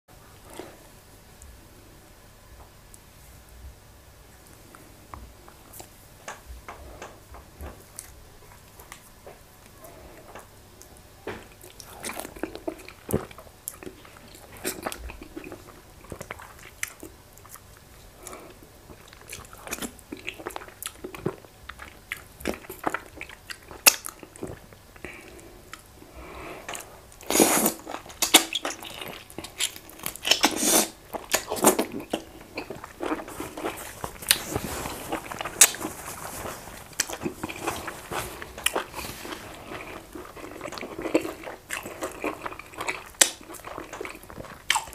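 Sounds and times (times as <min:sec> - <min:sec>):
person chewing food: 0:06.7 - 0:44.9.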